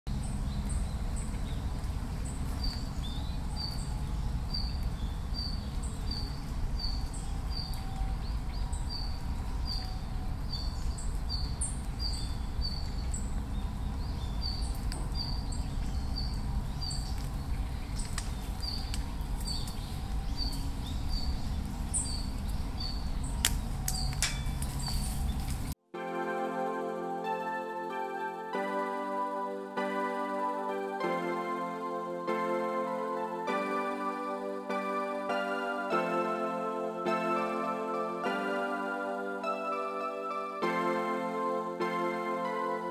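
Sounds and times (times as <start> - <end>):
small bird chirping: 0.1 - 25.7
low outdoor rumble: 0.1 - 25.8.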